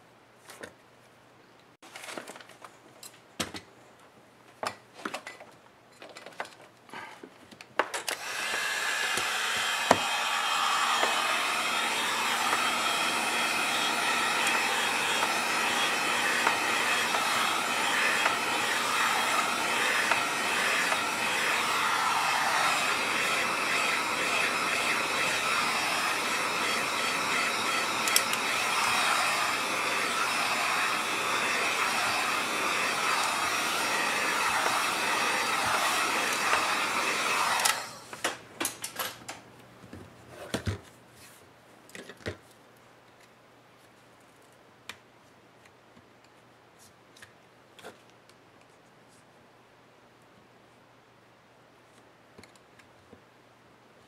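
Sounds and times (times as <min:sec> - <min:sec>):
heat gun blowing air: 0:08.2 - 0:38.3.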